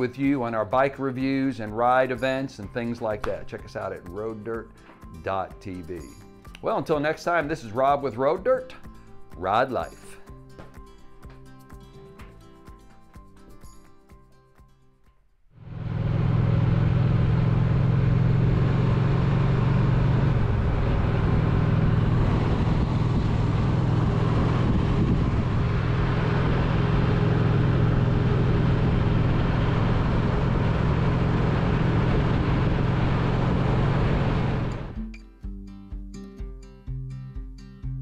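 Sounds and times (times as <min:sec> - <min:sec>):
wind and road noise: 0:15.6 - 0:35.0
motorcycle engine running: 0:15.6 - 0:35.1.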